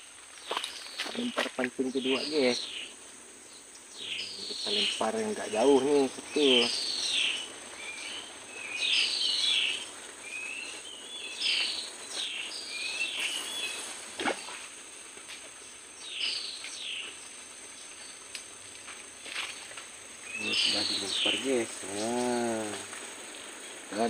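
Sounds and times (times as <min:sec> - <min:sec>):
high insect buzz: 0:00.0 - 0:24.0
birds whistling calls: 0:00.4 - 0:02.9, 0:03.8 - 0:14.7, 0:20.2 - 0:24.0.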